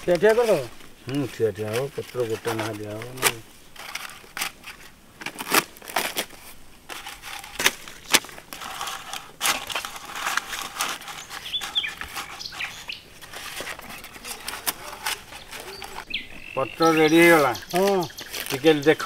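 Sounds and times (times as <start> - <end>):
leaves crackling: 0.0 - 19.0.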